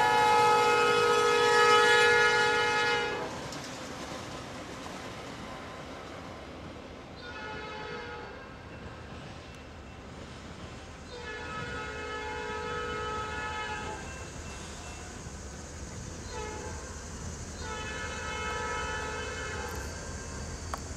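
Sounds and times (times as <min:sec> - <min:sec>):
distant locomotive air horn: 0:00.0 - 0:03.5, 0:07.2 - 0:08.6, 0:11.1 - 0:15.2, 0:16.2 - 0:17.0, 0:17.6 - 0:20.4
low rumble of train: 0:00.0 - 0:20.9.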